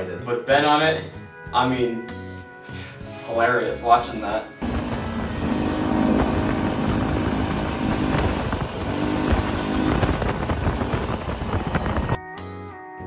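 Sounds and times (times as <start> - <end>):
small engine running: 4.6 - 12.2.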